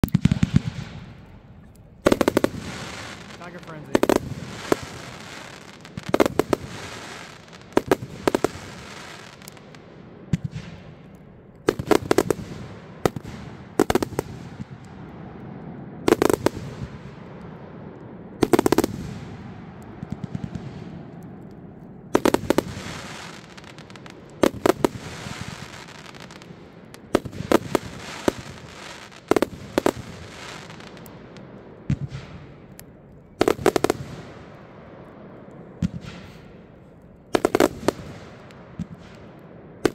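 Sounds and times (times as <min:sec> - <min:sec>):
firework salute bangs: 0:00.0 - 0:09.4
firework hissing: 0:02.0 - 0:09.8, 0:22.2 - 0:31.0.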